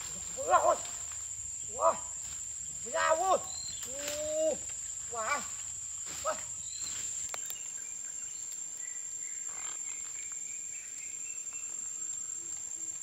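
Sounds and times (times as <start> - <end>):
insect drone: 0.0 - 13.0
faint clicks: 7.2 - 7.8.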